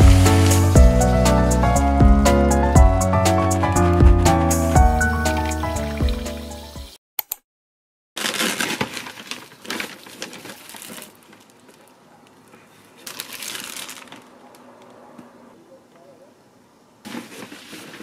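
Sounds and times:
packaging rustling and crinkling: 0.0 - 0.8, 8.2 - 14.6, 17.0 - 18.0.

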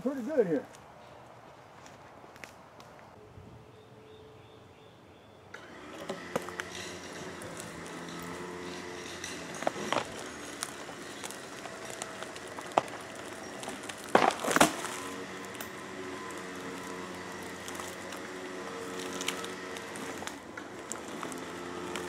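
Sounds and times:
tree trunk cracking: 5.7 - 22.0
trunk splintering and falling: 5.8 - 22.0.

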